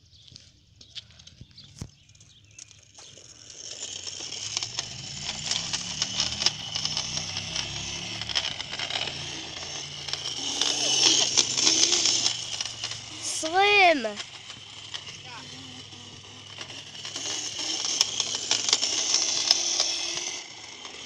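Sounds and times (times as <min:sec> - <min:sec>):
low motor hum: 0:00.8 - 0:21.0
wheels hissing on asphalt: 0:01.0 - 0:21.0.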